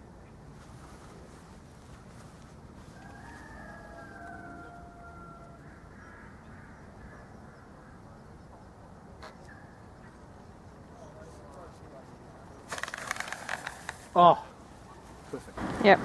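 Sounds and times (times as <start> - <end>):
low wind rumble: 0.0 - 16.0
crow calling: 3.1 - 8.0.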